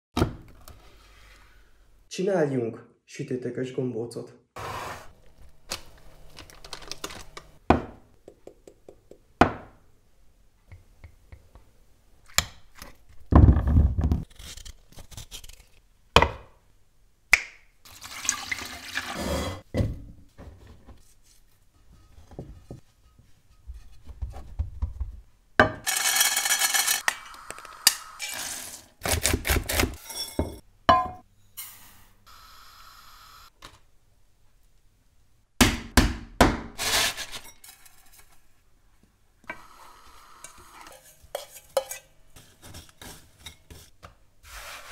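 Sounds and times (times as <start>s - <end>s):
sharp kitchen knocks and taps: 7.7s - 9.8s, 24.1s - 25.9s, 35.6s - 36.8s
pouring scraping or mixing: 17.9s - 19.7s, 25.8s - 30.1s, 36.8s - 38.5s.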